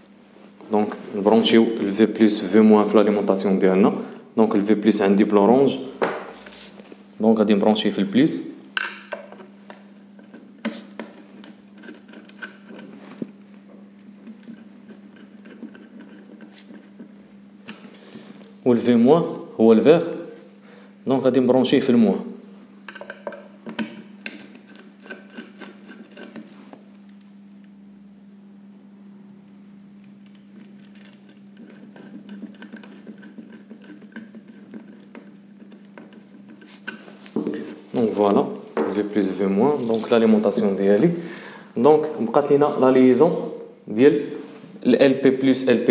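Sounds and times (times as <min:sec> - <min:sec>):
steady low hum: 0:00.0 - 0:45.9
screwdriver clicking and scraping: 0:10.3 - 0:12.9, 0:14.2 - 0:16.9, 0:22.9 - 0:26.5, 0:30.3 - 0:37.0.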